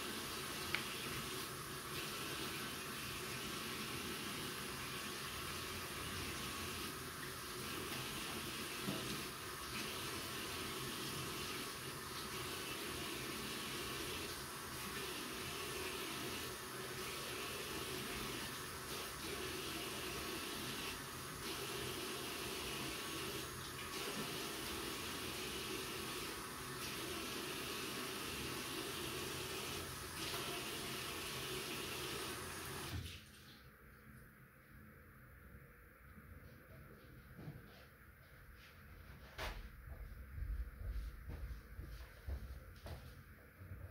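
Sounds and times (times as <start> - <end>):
tap water running into basin: 0.0 - 33.5.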